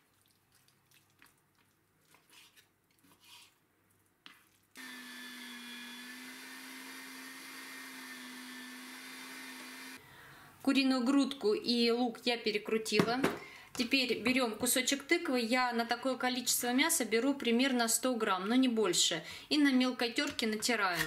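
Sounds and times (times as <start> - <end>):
electric meat grinder humming: 4.8 - 10.0.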